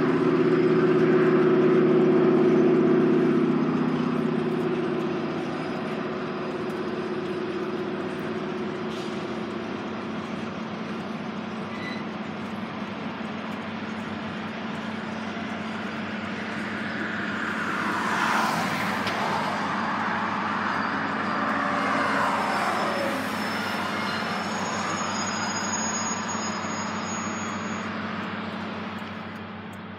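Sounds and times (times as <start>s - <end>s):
steady low drone: 0.0s - 11.3s, 12.5s - 29.9s
vehicles swishing past: 14.0s - 29.4s.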